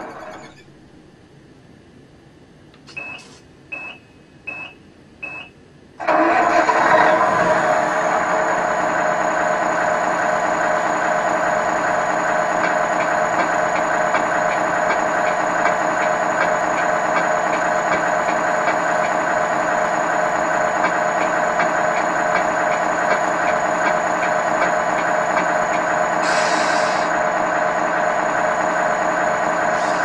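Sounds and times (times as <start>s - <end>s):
short beeps: 2.9s - 5.5s
simulated diesel engine idling: 6.0s - 30.0s.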